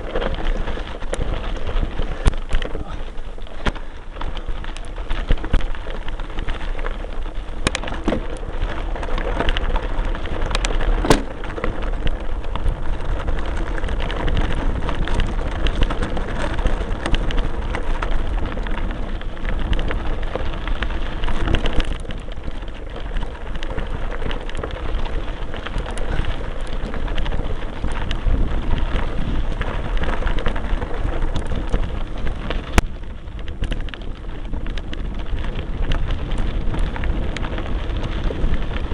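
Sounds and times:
bike rattling: 0.0 - 38.9
bike tyres crackling on gravel: 0.0 - 38.9
sharp knocks over bumps: 7.6 - 8.4, 10.5 - 11.7.

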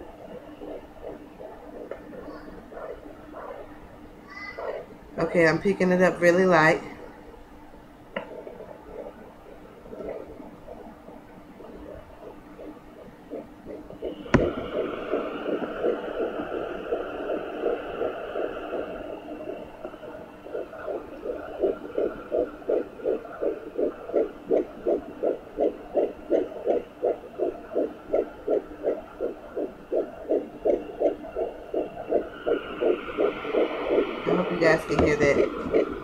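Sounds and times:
fetal heartbeat on doppler: 0.0 - 7.2, 8.2 - 36.0
sharp knock: 14.3 - 14.8.

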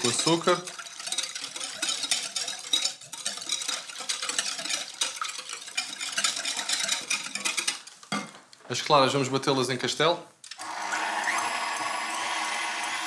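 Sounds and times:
whisk beating liquid in bowl: 0.0 - 8.1, 10.6 - 13.0
whisk wires scraping glass: 0.0 - 8.3.

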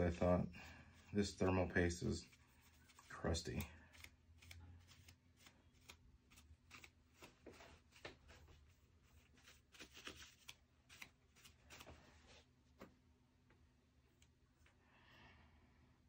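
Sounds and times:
scratching and rubbing: 2.1 - 12.0.

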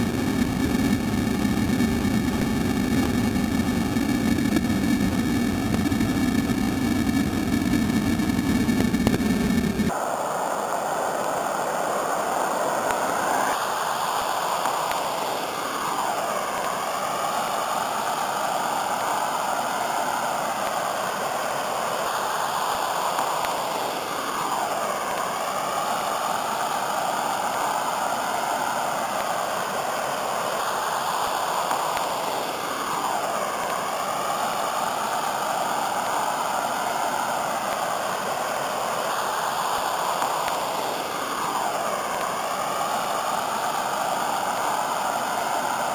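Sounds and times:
waterfall rushing: 10.0 - 45.9.

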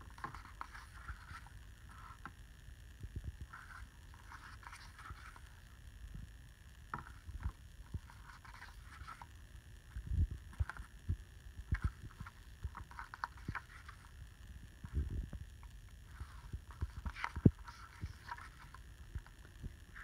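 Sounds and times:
paper pages rustling: 0.1 - 2.3, 3.5 - 5.7, 6.9 - 9.3, 11.7 - 14.1, 16.1 - 19.3.

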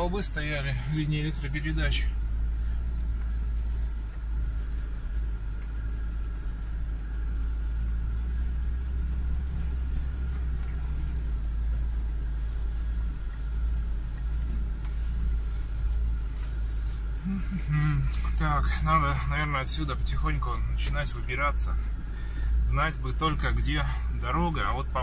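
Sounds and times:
car engine running: 0.0 - 25.0
faint clicks: 5.4 - 8.1.

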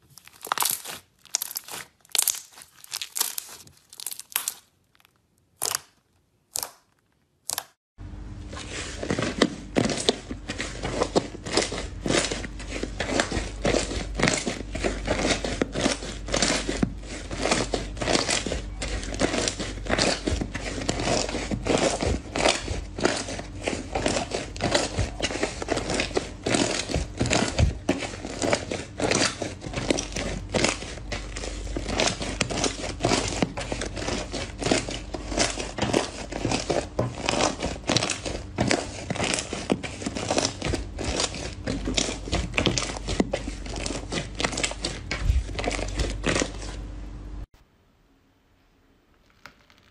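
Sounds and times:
slime popping and crackling: 0.0 - 7.8, 11.1 - 46.6, 49.2 - 49.9
steady low hum: 8.0 - 49.0.

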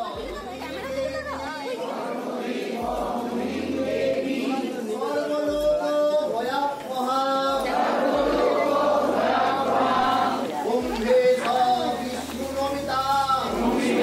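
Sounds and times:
group of voices chanting: 1.7 - 5.2, 7.6 - 10.6, 11.4 - 14.0.

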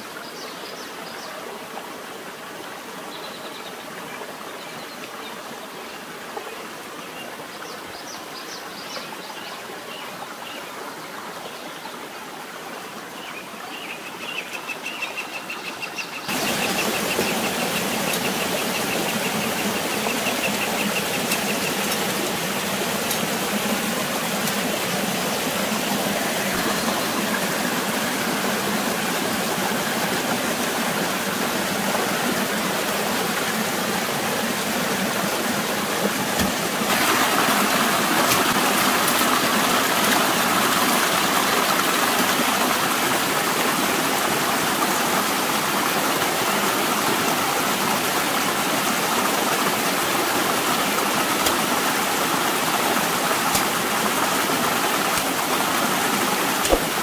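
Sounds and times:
stream water rushing: 0.0 - 57.0.

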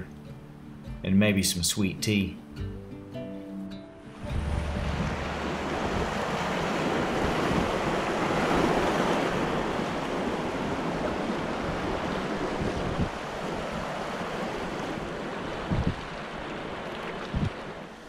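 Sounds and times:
creek water rushing: 4.0 - 18.0
wind on microphone: 4.2 - 16.4, 17.0 - 17.8.

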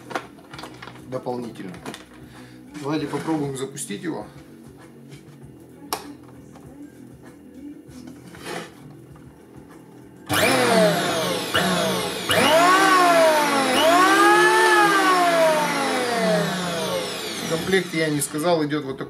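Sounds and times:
electric planer whining: 10.3 - 18.5.

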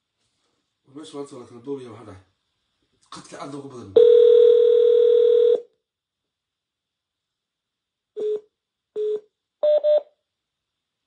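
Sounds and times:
telephone beeps: 4.0 - 5.6, 8.2 - 8.4, 9.0 - 10.1
telephone dial tone: 4.0 - 5.6.

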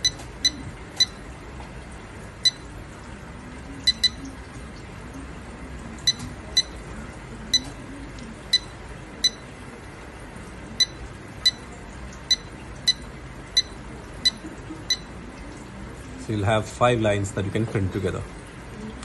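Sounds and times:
short high electronic beeps: 3.8 - 4.2.

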